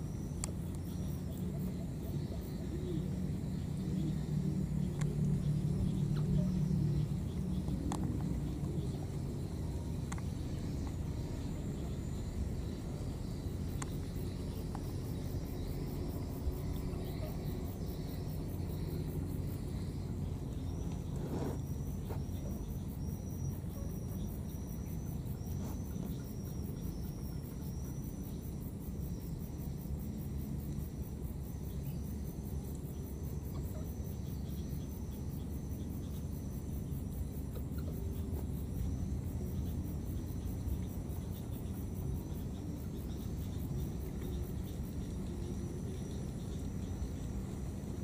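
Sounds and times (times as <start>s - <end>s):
insects chirping: 0.0s - 48.0s.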